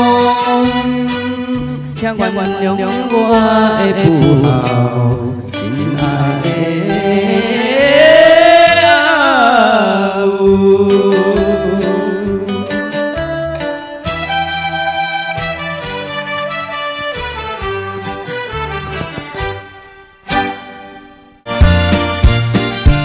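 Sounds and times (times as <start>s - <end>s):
song with gliding vibrato melody: 0.4s - 8.4s.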